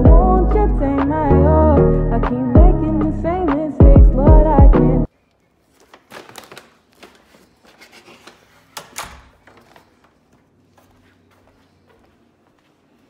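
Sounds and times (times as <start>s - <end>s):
paper bags rustling: 5.6s - 10.8s.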